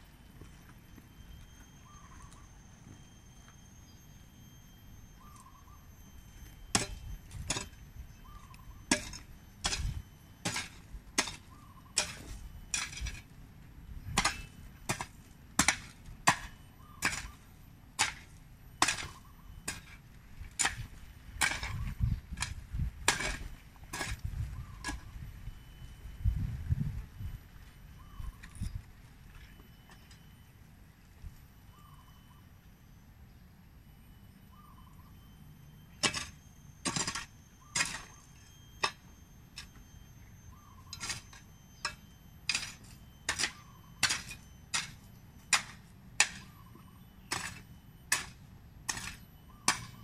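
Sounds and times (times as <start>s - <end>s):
hoe chopping into soil: 8.9s - 13.2s, 14.2s - 17.4s, 18.0s - 20.0s, 22.4s - 24.2s, 47.3s - 50.0s.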